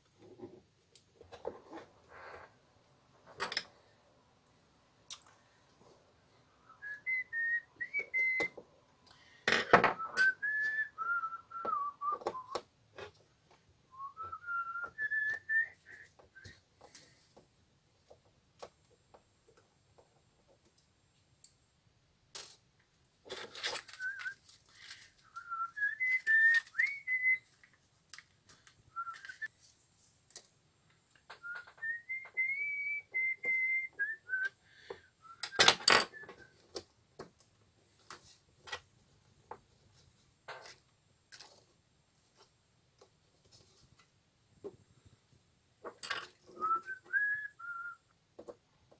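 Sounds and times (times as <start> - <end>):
man whistling a tune: 6.6 - 8.6, 10.0 - 12.6, 13.9 - 16.6, 23.9 - 24.4, 25.2 - 27.5, 31.4 - 34.6, 35.2 - 36.6, 46.6 - 48.1.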